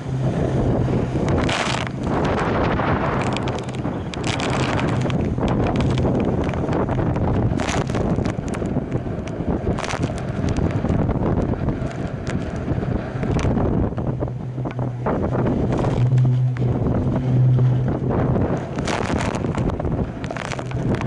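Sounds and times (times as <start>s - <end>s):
sharp water splashes: 0.0s - 8.7s
boat hulls rushing through water: 0.0s - 21.0s
wind buffeting microphone: 0.0s - 21.0s.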